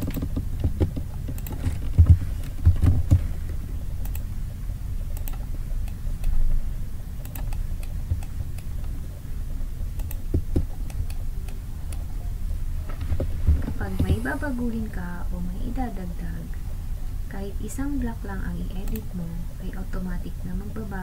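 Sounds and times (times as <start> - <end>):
low hum: 0.0 - 21.0
mouse and keyboard clicks: 5.1 - 6.4, 18.8 - 19.1.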